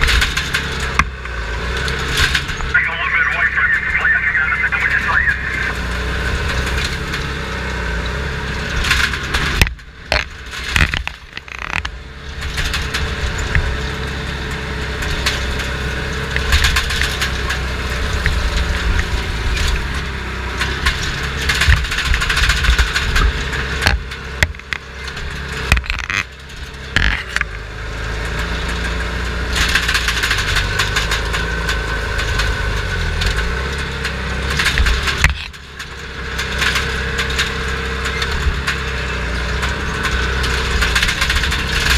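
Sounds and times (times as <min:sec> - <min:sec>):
bulldozer diesel engine: 0:00.0 - 0:41.9
brush and wood crushing: 0:10.1 - 0:11.9.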